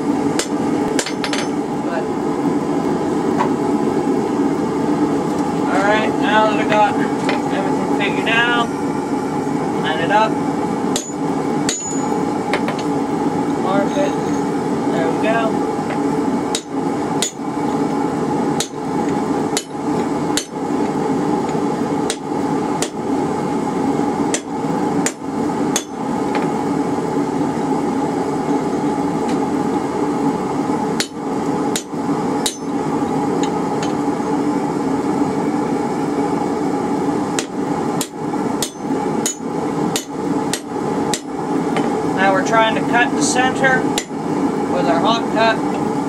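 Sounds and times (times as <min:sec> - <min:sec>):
hammer striking hot metal: 0:00.4 - 0:01.6, 0:10.9 - 0:12.9, 0:15.9 - 0:17.6, 0:18.6 - 0:20.7, 0:22.0 - 0:23.0, 0:24.3 - 0:26.5, 0:31.0 - 0:32.8, 0:37.4 - 0:41.9, 0:43.9 - 0:44.2.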